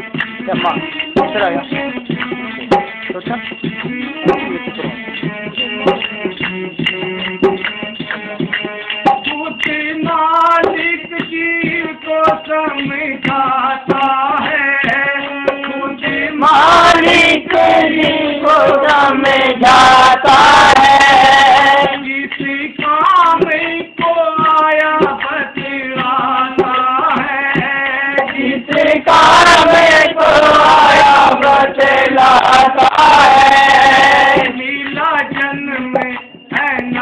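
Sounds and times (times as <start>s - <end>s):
hand drum beating: 0.0s - 37.0s
harmonium: 0.0s - 37.0s
devotional singing: 9.0s - 37.0s.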